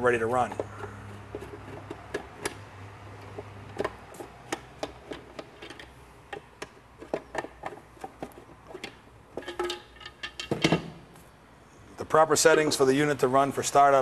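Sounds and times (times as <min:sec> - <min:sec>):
clicks and knocks of enclosure handled: 0:00.4 - 0:02.6, 0:03.2 - 0:10.9.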